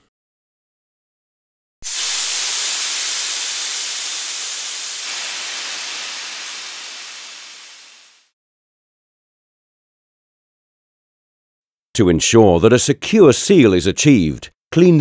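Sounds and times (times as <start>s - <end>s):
steady hiss: 1.8s - 8.3s.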